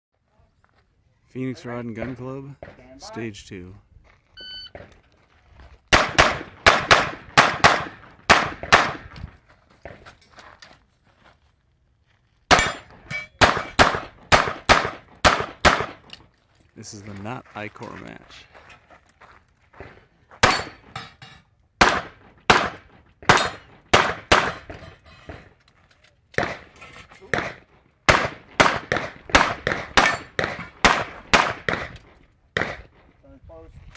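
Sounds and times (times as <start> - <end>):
shot timer beep: 4.4 - 4.8
handgun shots: 5.9 - 9.2, 12.5 - 16.1, 20.4 - 20.9, 21.8 - 24.7, 27.3 - 32.0, 32.6 - 32.9.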